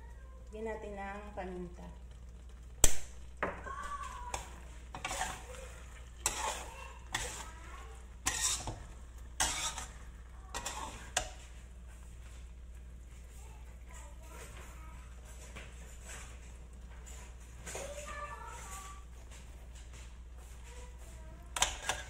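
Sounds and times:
metal spatula scraping a wok: 4.3 - 12.0, 20.9 - 22.0.

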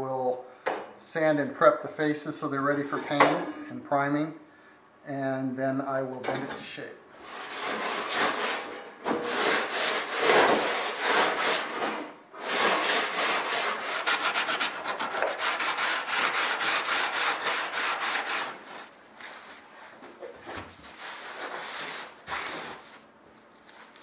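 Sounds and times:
rasping strokes on aluminium sheet: 7.2 - 18.9.

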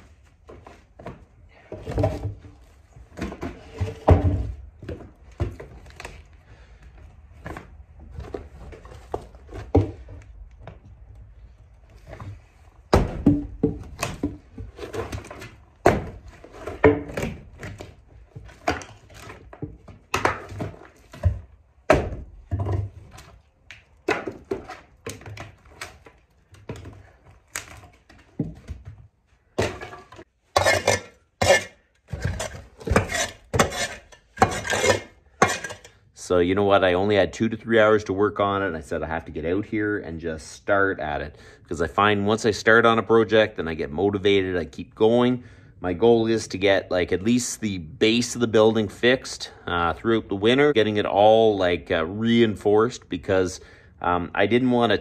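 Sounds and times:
debris scraping: 29.5 - 36.0.

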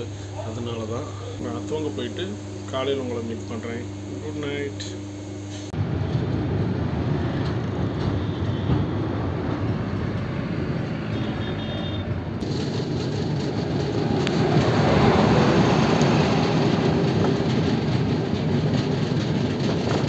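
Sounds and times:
train rumbling on rails: 5.8 - 11.5, 12.1 - 20.0.

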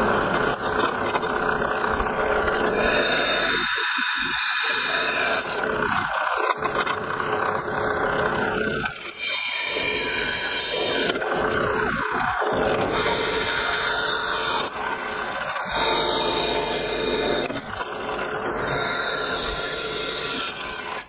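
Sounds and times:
drill press motor whirring: 0.0 - 21.0
drill bit squealing in metal: 2.5 - 5.8, 8.6 - 21.0.

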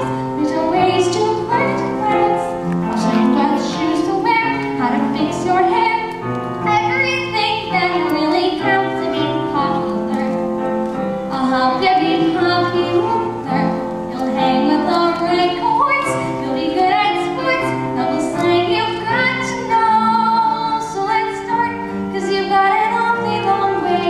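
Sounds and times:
girl singing into microphone: 0.0 - 10.6, 11.2 - 24.0
instrumental accompaniment: 0.0 - 24.0.

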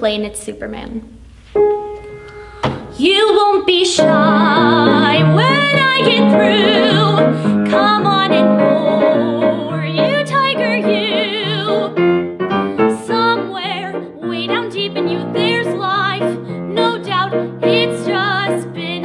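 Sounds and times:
piano accompaniment: 1.2 - 19.0
woman singing: 2.9 - 12.0, 12.8 - 19.0.

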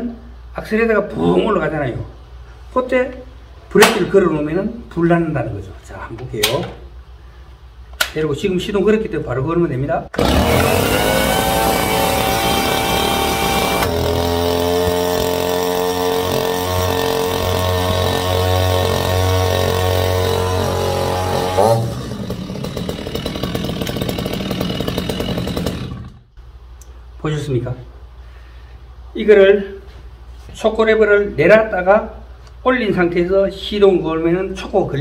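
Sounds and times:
chainsaw engine running fast: 10.2 - 26.3.

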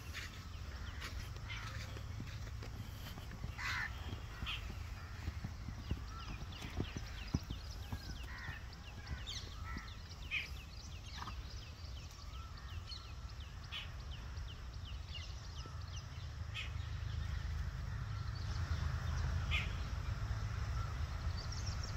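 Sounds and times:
hooves stepping on sand: 0.0 - 12.5
birds chirping: 0.0 - 21.9.

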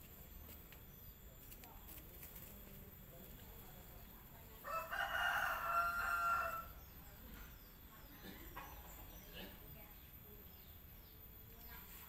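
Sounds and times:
rooster crowing: 4.6 - 6.8.

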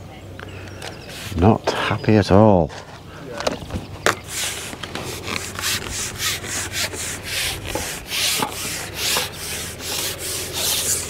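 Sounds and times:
fishing pole rubbing strokes: 1.0 - 1.4, 4.1 - 11.0.

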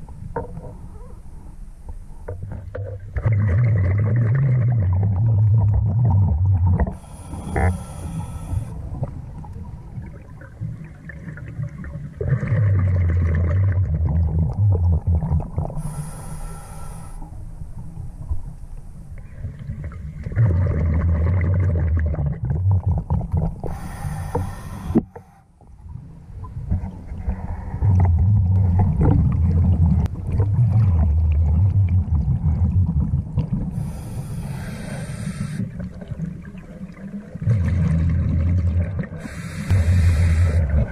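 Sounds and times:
low bubbling of exhaled air: 2.2 - 18.4, 19.2 - 25.4, 26.4 - 40.9
regulator hiss on inhale: 6.9 - 8.8, 15.8 - 17.4, 23.6 - 25.5, 33.8 - 35.8, 39.2 - 40.8.

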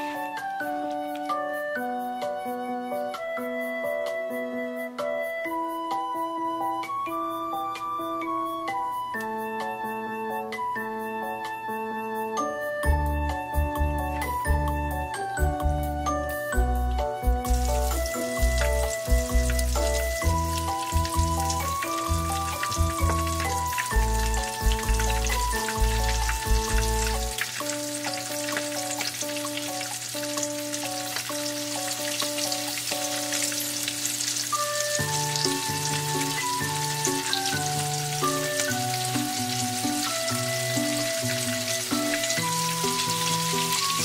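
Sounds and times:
shrimp sizzling in hot oil: 17.4 - 44.0.

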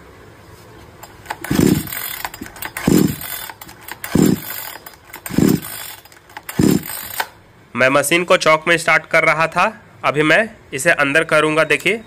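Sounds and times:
engine turning over: 1.0 - 7.4
recoil starter cord whirring: 1.0 - 7.4.

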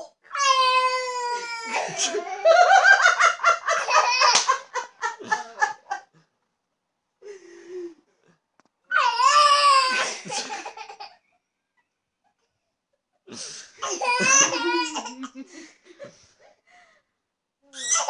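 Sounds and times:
toddler laughing: 13.8 - 15.4
toddler squealing: 17.7 - 18.0.

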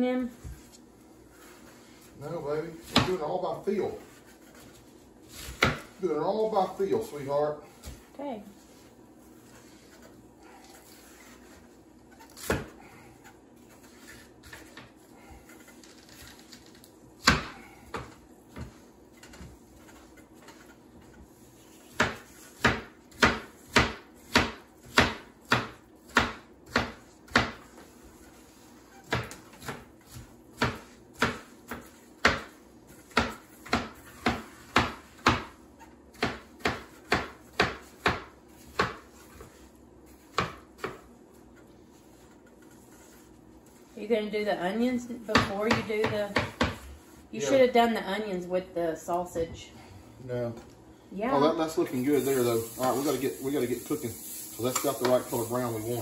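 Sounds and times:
knife chopping on cutting board: 2.8 - 3.3, 4.2 - 6.0, 12.4 - 12.8, 17.2 - 20.7, 21.8 - 41.1, 45.3 - 47.2.

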